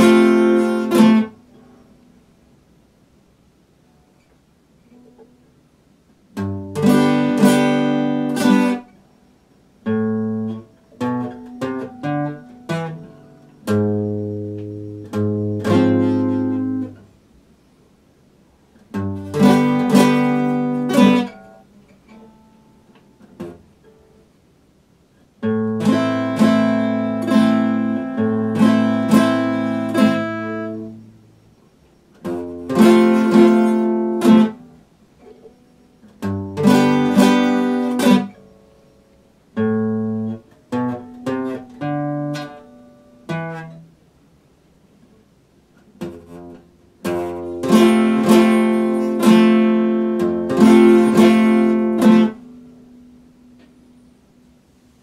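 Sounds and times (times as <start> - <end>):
fingerpicked acoustic guitar: 0.0 - 2.5, 3.8 - 17.4, 18.7 - 55.0.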